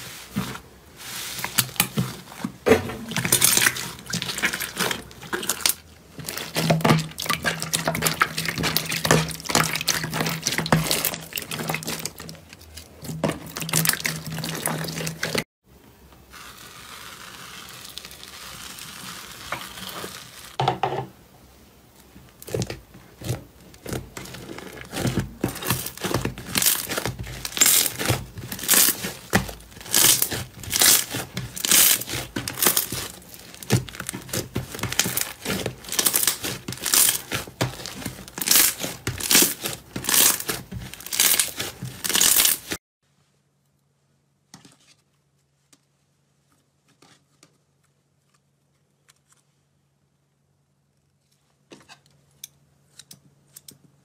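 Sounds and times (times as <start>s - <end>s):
soft rustle of fluffy slime: 0.0s - 2.6s, 16.2s - 20.6s, 23.2s - 51.7s
slime crackling and popping: 3.1s - 15.4s, 22.4s - 42.8s.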